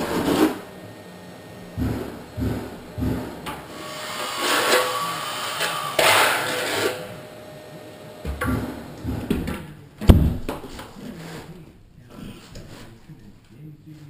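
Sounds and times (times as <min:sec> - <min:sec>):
trowel scraping tile: 0:00.0 - 0:00.6, 0:03.8 - 0:07.1, 0:11.0 - 0:11.6.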